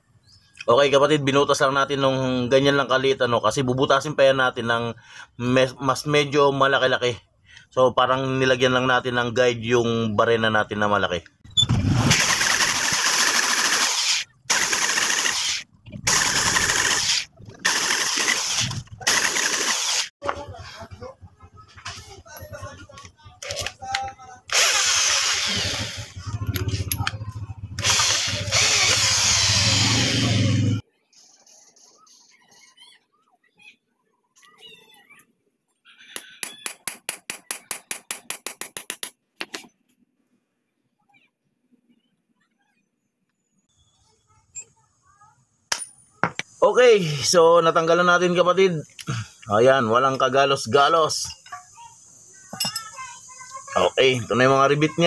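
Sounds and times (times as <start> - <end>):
electric drill boring metal: 24.5 - 26.9, 27.8 - 30.5.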